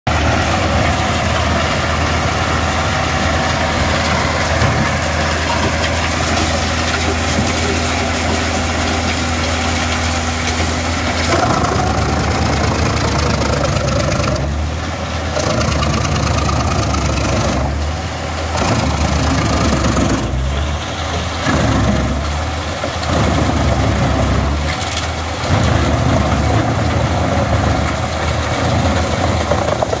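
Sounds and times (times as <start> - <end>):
wood chipper chipping logs: 0.1 - 30.0.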